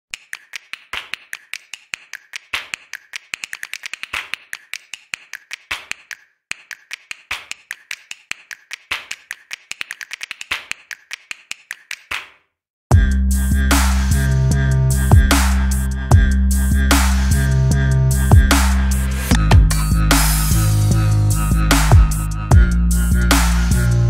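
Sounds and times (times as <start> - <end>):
rapid sharp clicks and taps: 0.1 - 12.4.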